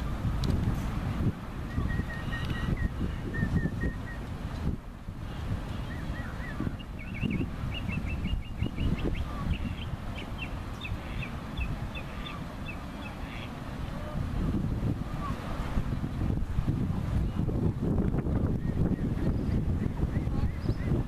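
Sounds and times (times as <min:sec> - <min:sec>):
wind buffeting microphone: 0:00.0 - 0:21.0
bird chirps and trills: 0:05.8 - 0:13.5.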